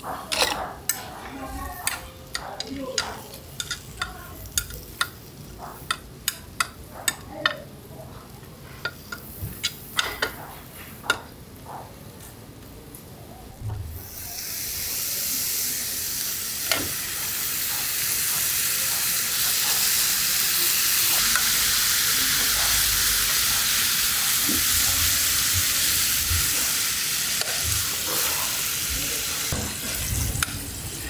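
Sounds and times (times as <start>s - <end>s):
beef sizzling on a griddle: 0.1s - 7.6s, 8.6s - 11.2s, 14.0s - 31.0s
metal tongs clicking: 1.8s - 7.6s.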